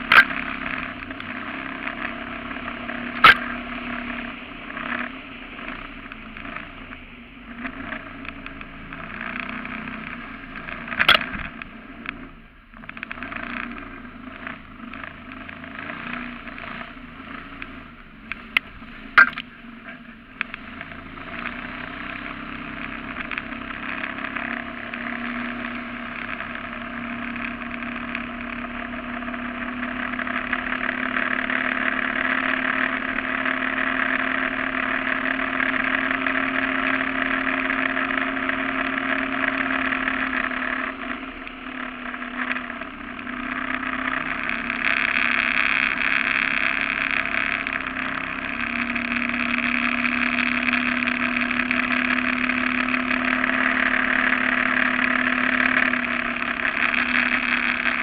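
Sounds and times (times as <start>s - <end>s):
boat motor running: 0.0s - 58.0s.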